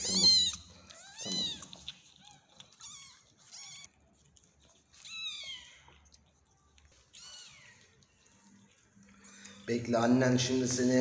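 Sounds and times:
kitten mewing: 0.0 - 3.9, 7.2 - 8.0.

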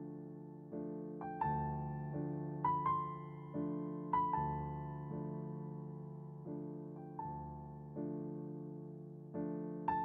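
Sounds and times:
soft piano chords: 0.0 - 10.0.

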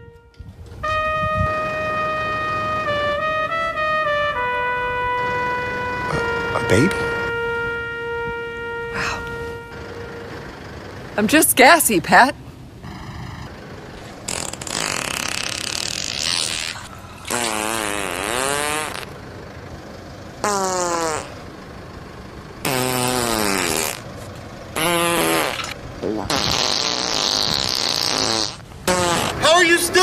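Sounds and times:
farts: 14.3 - 19.1, 20.4 - 21.4, 22.6 - 24.1, 24.8 - 29.5.

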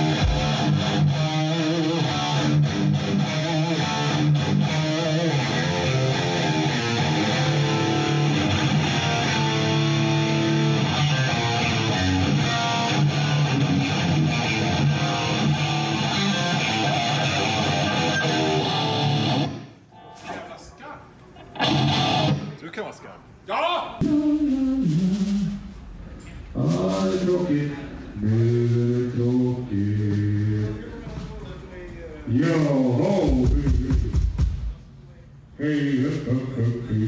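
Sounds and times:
electric guitar riffing: 0.0 - 20.6, 21.4 - 22.6.

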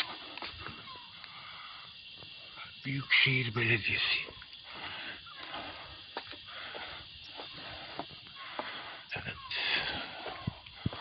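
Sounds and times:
steady hiss: 0.0 - 11.0
footsteps on pavement: 4.3 - 8.9, 9.9 - 11.0.

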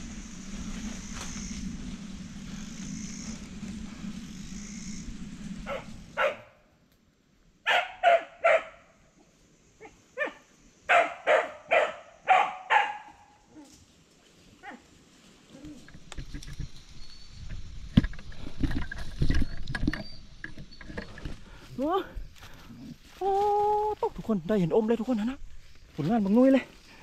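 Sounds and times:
steady rushing noise: 0.0 - 6.6
dog barking: 5.7 - 6.5, 7.7 - 8.8, 10.2 - 13.2.

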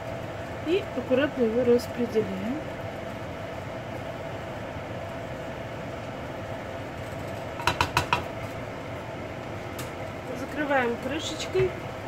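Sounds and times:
kitchen hum: 0.0 - 12.0
spatula knocking against pan: 7.6 - 8.3.

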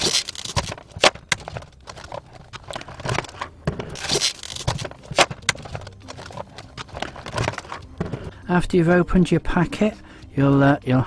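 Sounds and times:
plastic packaging crackling: 0.0 - 8.0
sharp plastic clicks: 0.0 - 8.0.

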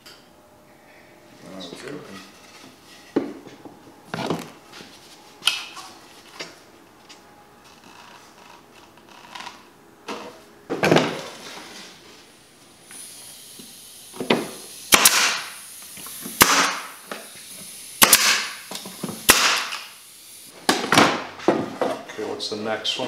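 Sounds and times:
air hiss: 11.2 - 20.6
pneumatic stapler shots: 12.9 - 20.0.

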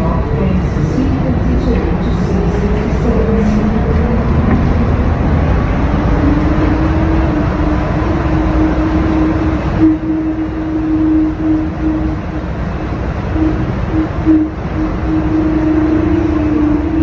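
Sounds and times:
train running gear rumble: 0.0 - 17.0
motor whine: 3.9 - 17.0.

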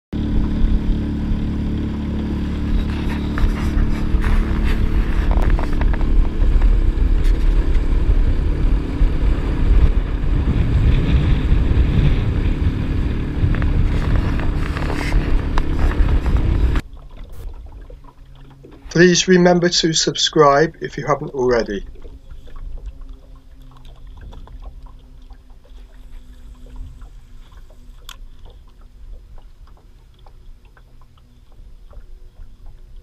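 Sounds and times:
outboard motor running: 0.1 - 33.0
wind buffeting microphone: 0.2 - 18.0
water rushing past hull: 0.2 - 33.0.

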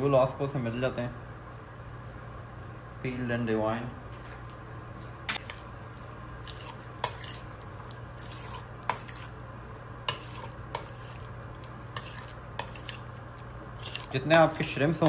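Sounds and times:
steady low hum: 0.0 - 15.0
utensil clinking against bowl: 11.9 - 13.1.

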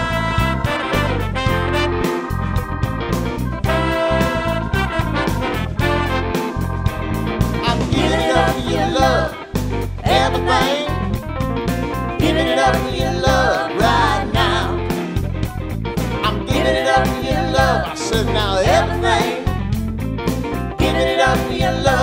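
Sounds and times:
live band playing: 0.0 - 22.0
person singing: 7.6 - 9.4.

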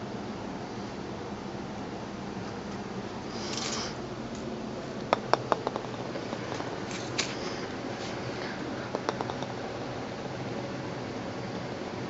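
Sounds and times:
golf ball bouncing on paving: 5.0 - 7.4, 8.9 - 9.6.

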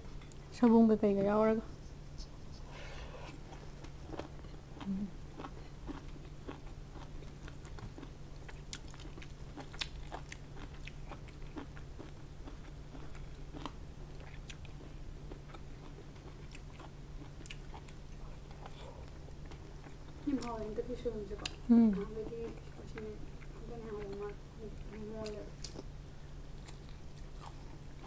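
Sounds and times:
steady low hum: 0.0 - 28.0
mouth clicks and smacks chewing: 3.8 - 20.5.

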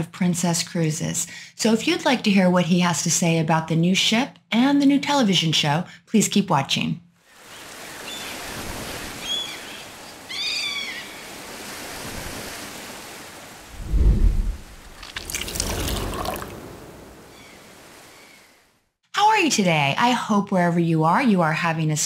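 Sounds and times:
ocean surf washing: 7.3 - 18.8
seagull cries: 10.3 - 11.3
low thump: 13.8 - 15.0.

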